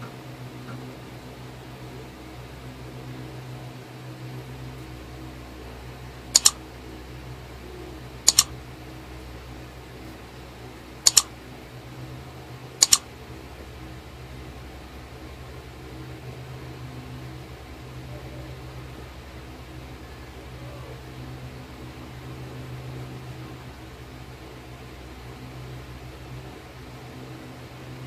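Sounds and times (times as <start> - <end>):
steady low hum: 0.0 - 28.0
mouse double clicks: 6.4 - 6.6, 8.3 - 8.5, 11.0 - 11.3, 12.8 - 13.1.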